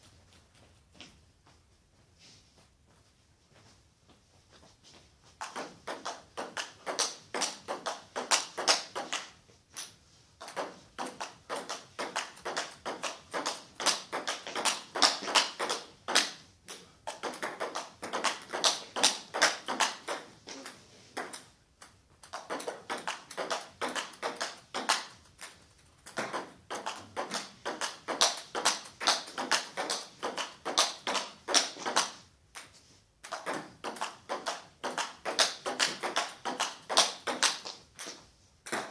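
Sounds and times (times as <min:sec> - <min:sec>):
table tennis ball clicking: 0:05.4 - 0:16.4, 0:21.2 - 0:25.2, 0:26.1 - 0:38.1.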